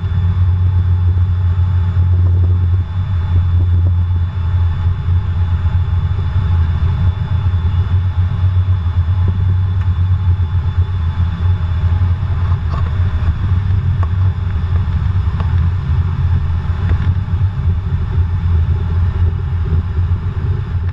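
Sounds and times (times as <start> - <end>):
faint steady whine: 0.0 - 20.9
jet engine low rumble: 0.0 - 20.9.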